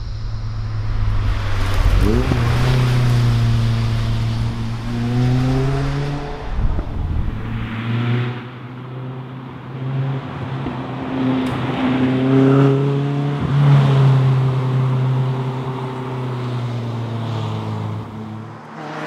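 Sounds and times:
sports car engine revving: 0:00.0 - 0:08.4.

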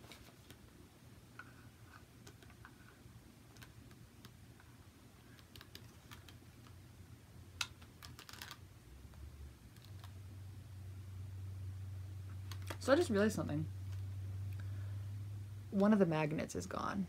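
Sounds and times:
resin doll parts clicking: 0:07.6 - 0:08.6.

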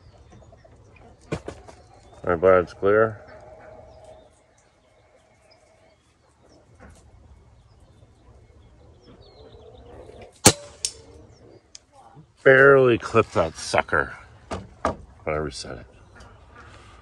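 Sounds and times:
pellet knocking metal target: 0:10.4 - 0:11.0
air rifle shot: 0:10.4 - 0:11.1.

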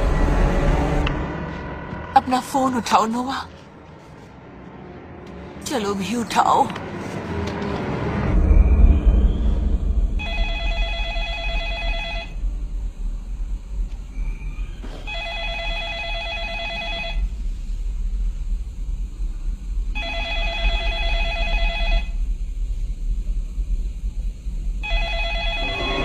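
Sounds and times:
low steady rumble: 0:00.0 - 0:26.0
telephone ringing: 0:10.2 - 0:12.4, 0:15.0 - 0:17.3, 0:20.0 - 0:22.2, 0:24.8 - 0:26.0.

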